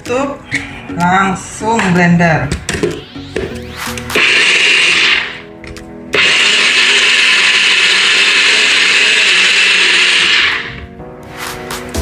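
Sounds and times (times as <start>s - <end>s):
blender motor running: 4.2s - 5.5s, 6.2s - 10.9s.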